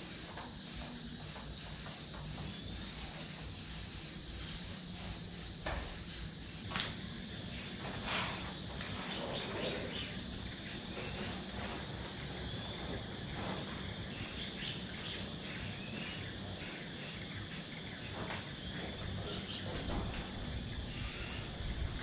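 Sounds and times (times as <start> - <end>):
spray paint can hissing: 0.0 - 12.8, 14.1 - 18.6.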